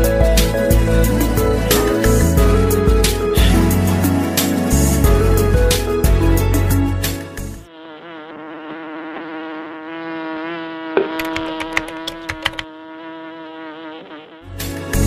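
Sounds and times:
cartoon bee buzzing: 0.4 - 15.0
sharp clicks: 11.0 - 12.7.

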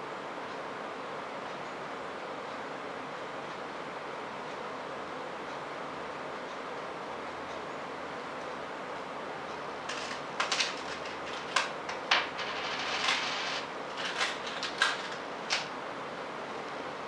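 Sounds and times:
coins clinking in plastic dish: 9.9 - 15.2.

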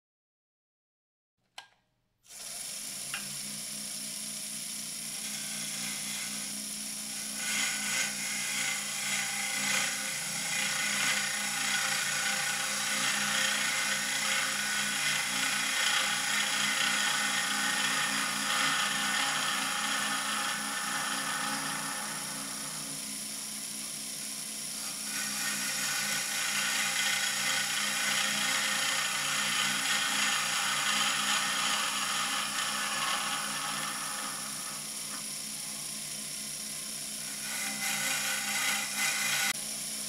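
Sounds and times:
lathe motor humming: 2.3 - 40.0
turning tool scraping wood: 5.0 - 23.1, 24.7 - 35.3, 37.2 - 39.6.

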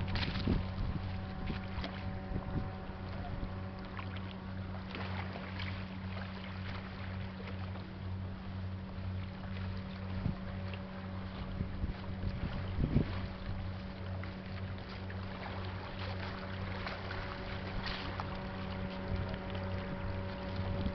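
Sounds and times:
wind noise: 0.0 - 3.6, 11.4 - 13.6
boat diesel engine throbbing: 0.0 - 20.9.

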